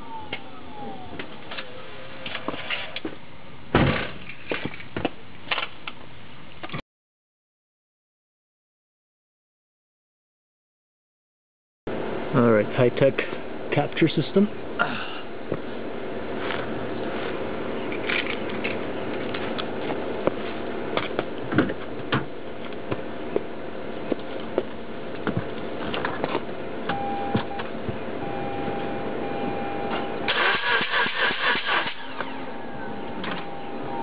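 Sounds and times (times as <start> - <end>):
steady hum: 11.9 - 34.0
engine cranking on starter: 30.2 - 32.5.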